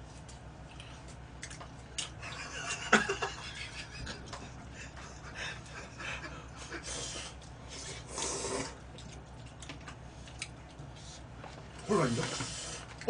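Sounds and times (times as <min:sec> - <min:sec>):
breathy snickering laughter: 0:02.2 - 0:07.2.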